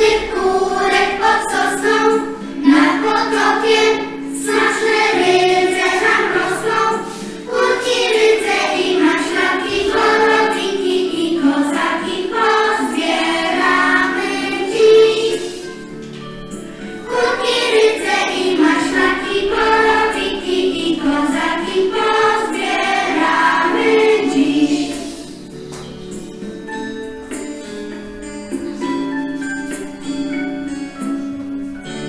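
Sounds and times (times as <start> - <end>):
children singing together: 0.0 - 16.0, 16.8 - 25.5.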